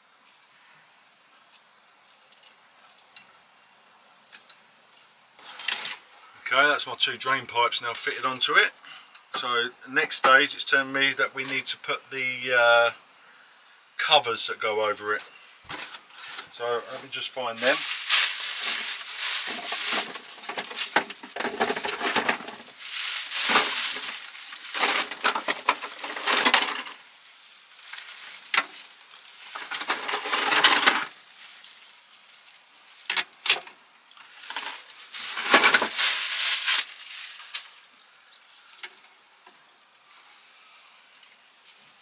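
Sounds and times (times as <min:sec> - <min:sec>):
plastic bags crinkling: 0:17.6 - 0:27.0, 0:27.7 - 0:32.0, 0:34.3 - 0:38.0.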